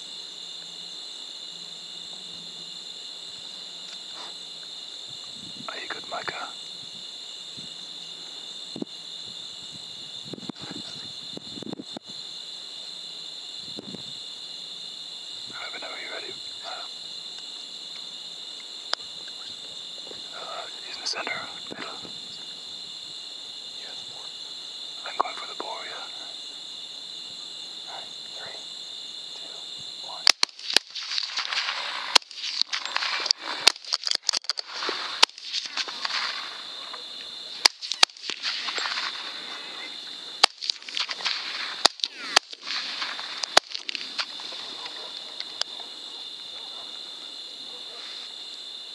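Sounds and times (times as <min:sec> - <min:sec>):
crickets trilling: 0:00.0 - 0:48.9
high insect buzz: 0:00.0 - 0:48.9
hiss: 0:34.6 - 0:44.7.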